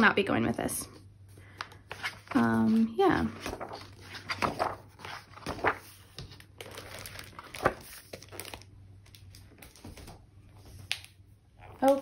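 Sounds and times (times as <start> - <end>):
book pages rustling: 1.5 - 11.2.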